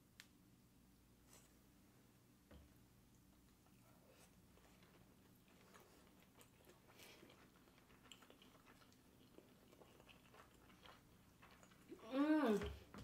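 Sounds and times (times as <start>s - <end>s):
low steady hum: 0.0s - 13.0s
people chewing: 3.4s - 13.0s.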